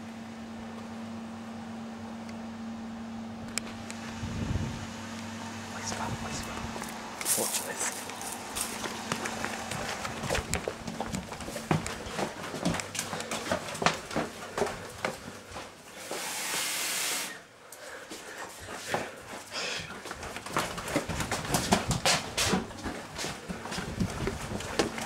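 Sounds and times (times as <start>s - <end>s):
hurried footsteps and knocks: 8.1s - 15.8s, 18.1s - 25.0s.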